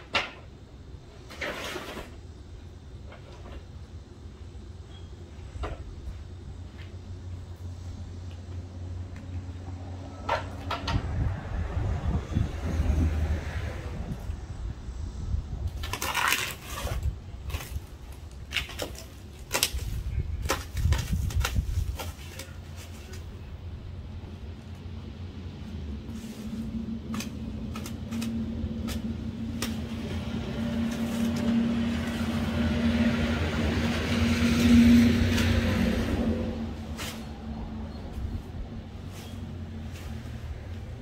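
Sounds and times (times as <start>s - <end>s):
vehicle engine hum: 2.1s - 41.0s
stretch wrap crackling and tearing: 15.8s - 23.2s.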